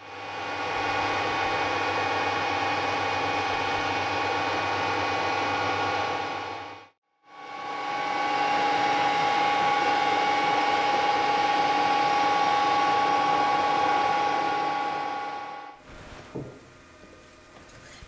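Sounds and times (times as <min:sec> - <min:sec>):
lathe whining: 0:07.3 - 0:15.8.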